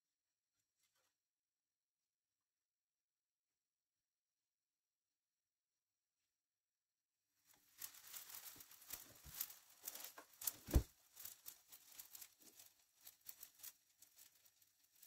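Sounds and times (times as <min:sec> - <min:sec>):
dough crackling and popping in pan: 0:07.4 - 0:15.0.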